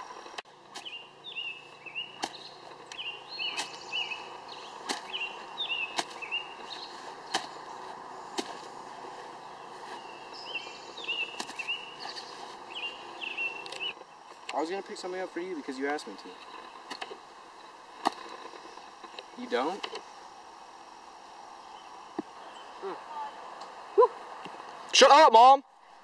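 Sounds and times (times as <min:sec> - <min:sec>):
stick tapping ground and ball: 0:02.1 - 0:04.0, 0:04.8 - 0:09.0, 0:11.1 - 0:12.3
stick swishing through grass: 0:02.2 - 0:10.5, 0:11.2 - 0:12.8.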